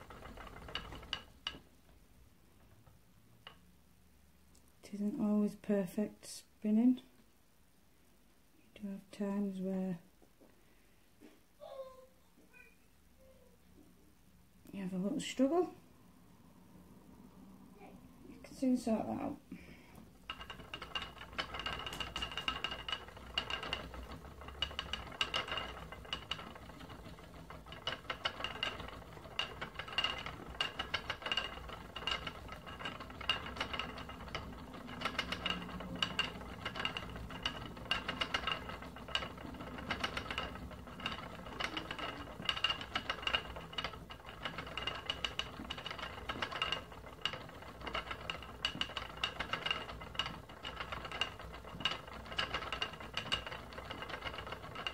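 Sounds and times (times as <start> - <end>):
spinning wheel clicking and rattling: 0.0 - 1.8, 19.9 - 54.9.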